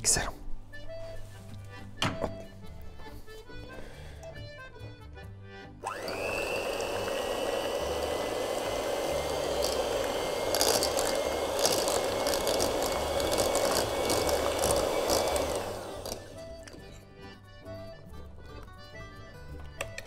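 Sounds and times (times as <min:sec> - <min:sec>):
electric hand mixer whining: 0:05.8 - 0:17.0.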